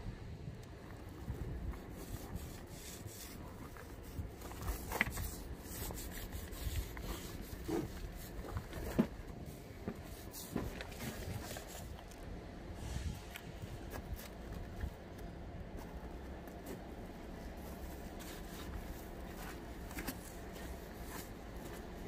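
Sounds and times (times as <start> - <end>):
low steady rumble: 0.0 - 22.0
faint rubbing: 1.2 - 12.0.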